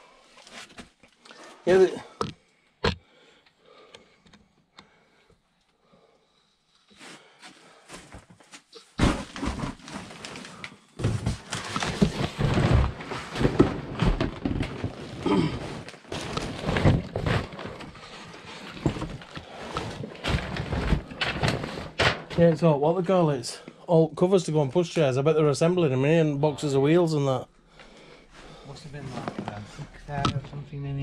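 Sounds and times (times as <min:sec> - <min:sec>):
rummaging through cardboard boxes: 0:07.0 - 0:22.7, 0:28.3 - 0:30.5.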